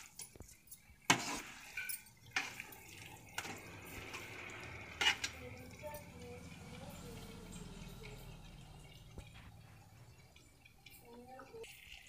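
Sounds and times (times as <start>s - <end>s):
frying sizzle: 0.0s - 12.0s
spatula scraping metal pan: 1.1s - 5.9s.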